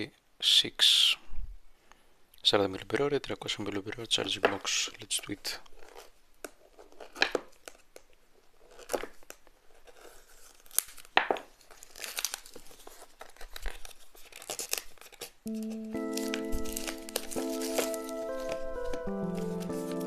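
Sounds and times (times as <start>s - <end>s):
plastic wrap crinkling: 4.1s - 20.0s
blade slitting plastic wrap: 10.0s - 20.0s.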